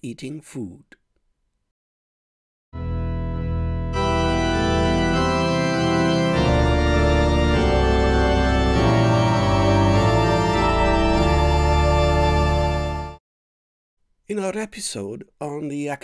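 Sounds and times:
sustained organ chords: 2.8s - 13.2s.

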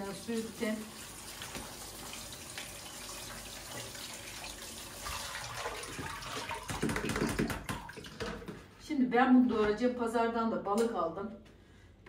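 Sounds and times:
tap water splashing into sink: 0.0s - 8.6s.

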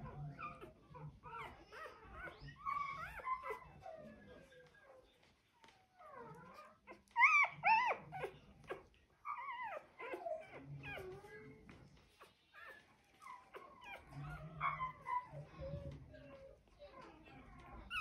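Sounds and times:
puppy squealing: 6.2s - 11.2s.

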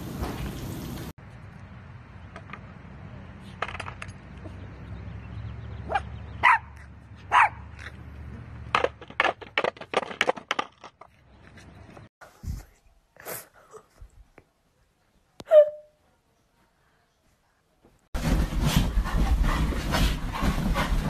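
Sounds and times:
small dog barking: 5.8s - 7.7s, 15.4s - 15.9s.

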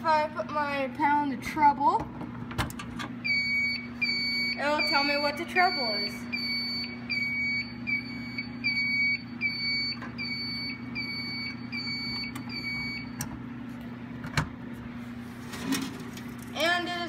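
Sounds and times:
steady low hum: 0.0s - 17.0s
short high alarm beeps: 3.2s - 13.2s.

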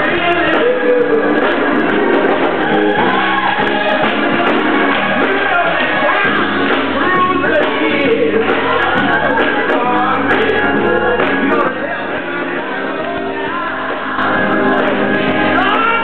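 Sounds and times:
man singing into a microphone: 0.0s - 1.8s, 7.0s - 12.4s
choir singing: 0.0s - 16.0s
hands clapping: 3.6s - 5.8s.

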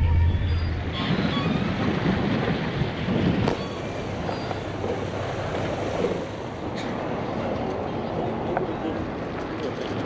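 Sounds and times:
low steady rumble: 0.0s - 1.2s
wind buffeting microphone: 0.0s - 8.1s.

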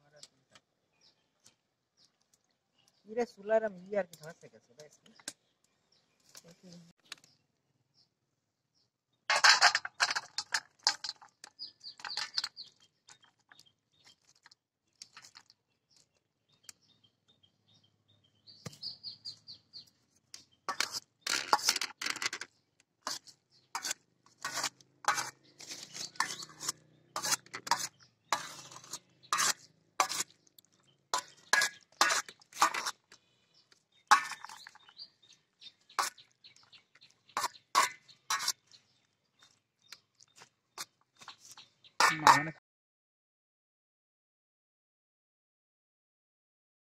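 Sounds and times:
spoon scraping metal plate: 9.3s - 11.2s, 20.7s - 22.4s, 23.0s - 30.4s, 31.1s - 33.1s, 34.1s - 34.9s, 37.4s - 38.6s, 42.0s - 42.5s.

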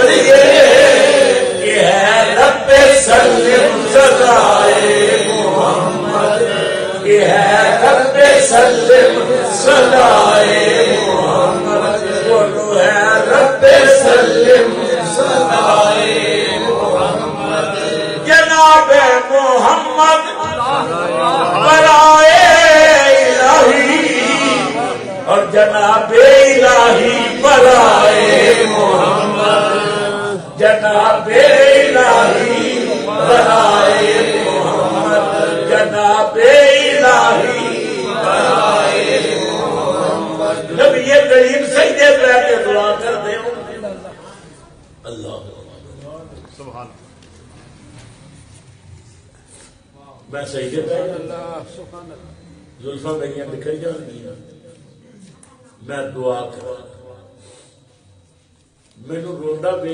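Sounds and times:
voices chanting together: 0.0s - 18.9s, 19.5s - 44.3s.

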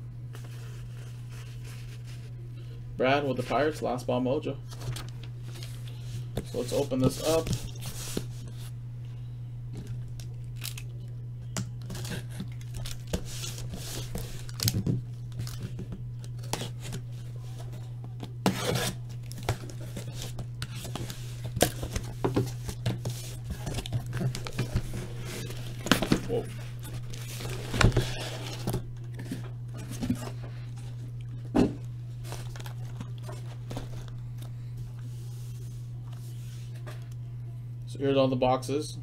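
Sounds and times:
steady low hum: 0.0s - 39.0s
box cutter slicing packing tape: 18.4s - 19.0s.

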